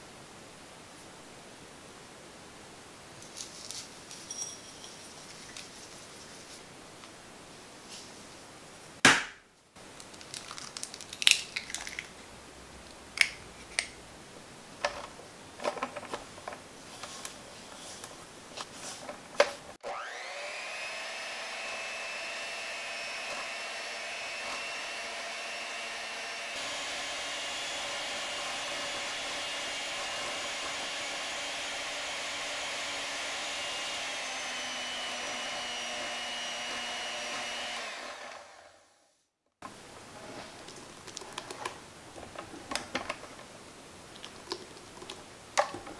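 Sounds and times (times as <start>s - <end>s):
electric hand mixer whirring: 19.8s - 39.1s.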